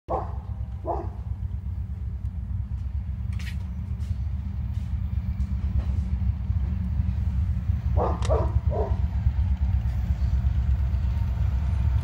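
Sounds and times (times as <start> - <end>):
distant locomotive diesel rumble: 0.1 - 12.0.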